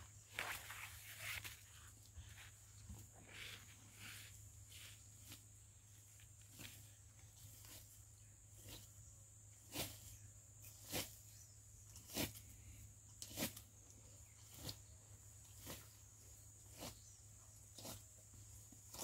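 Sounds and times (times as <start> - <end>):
footsteps on dry leaves: 0.1 - 2.7.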